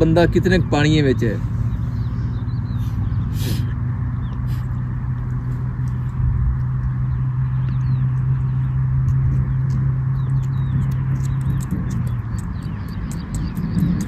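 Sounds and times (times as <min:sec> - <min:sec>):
low engine-like hum: 0:00.0 - 0:14.0
faint bird chirps: 0:01.6 - 0:04.6.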